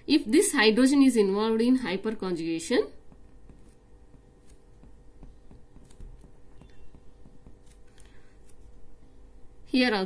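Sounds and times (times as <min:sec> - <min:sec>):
low steady hum: 0:00.0 - 0:10.0
pen scratching on paper: 0:03.2 - 0:08.7.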